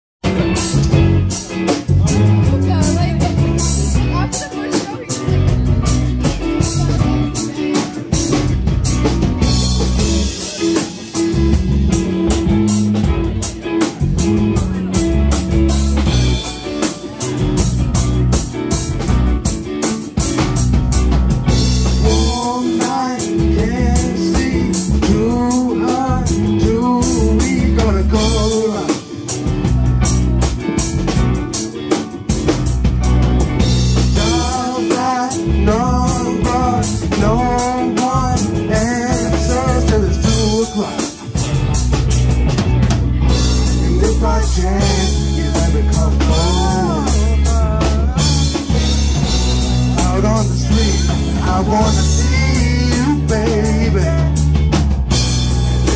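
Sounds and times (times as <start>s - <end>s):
bass guitar: 0.2s - 55.9s
drum kit: 0.2s - 55.9s
electric guitar: 0.2s - 55.9s.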